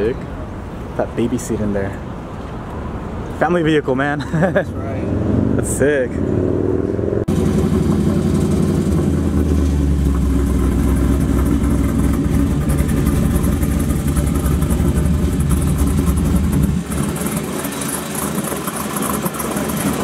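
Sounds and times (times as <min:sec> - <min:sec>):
truck engine idling: 0:07.3 - 0:20.0.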